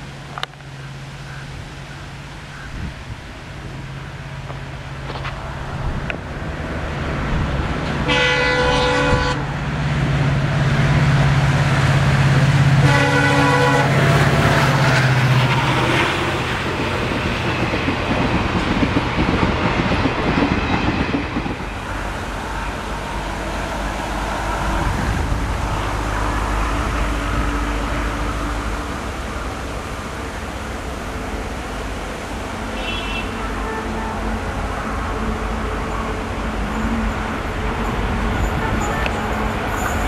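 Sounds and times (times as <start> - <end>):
diesel locomotive engine droning: 0.0 - 40.0
train horn blasts: 8.0 - 9.5, 12.8 - 16.2, 32.7 - 40.0
train wheels clattering on rails: 13.9 - 22.3.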